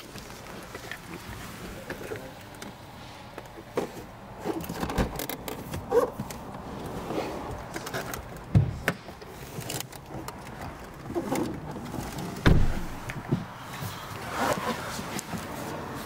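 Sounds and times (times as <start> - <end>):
heavy low thump: 12.4 - 13.4.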